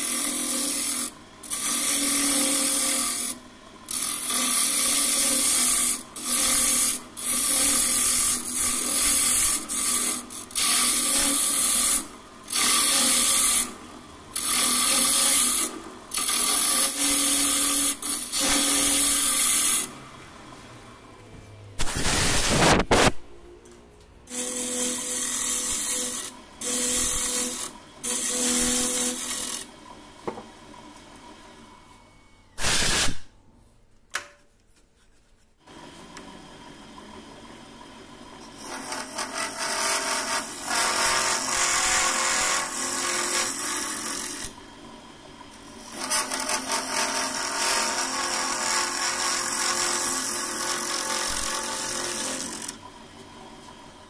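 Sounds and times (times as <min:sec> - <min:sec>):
turning tool cutting wood: 0:00.0 - 0:20.2, 0:24.3 - 0:29.7, 0:38.5 - 0:44.6, 0:45.7 - 0:52.8
wood lathe humming: 0:00.0 - 0:21.0, 0:36.8 - 0:53.9.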